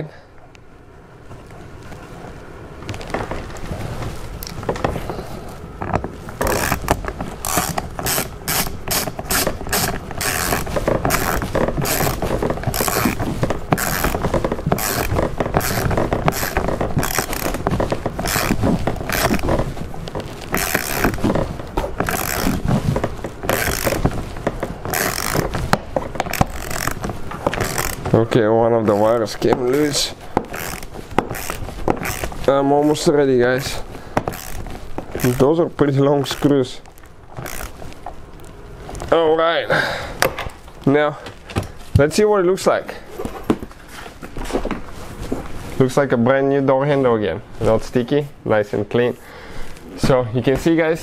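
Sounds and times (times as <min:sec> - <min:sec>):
soft scraping: 0:01.2 - 0:39.3
hand ratchet clicking: 0:05.8 - 0:28.2, 0:28.9 - 0:35.6, 0:36.2 - 0:37.8.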